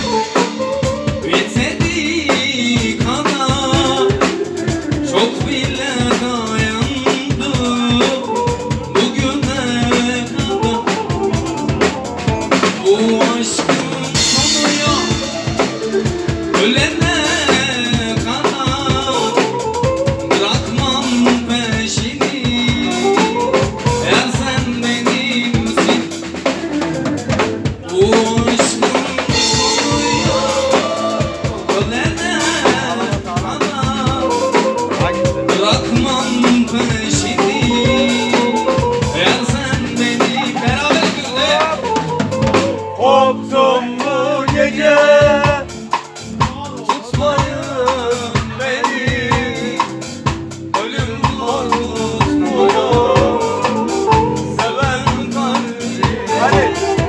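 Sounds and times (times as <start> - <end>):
drum kit beat: 0.0 - 57.0
live band playing: 0.0 - 57.0
wavering melody line: 29.2 - 43.4.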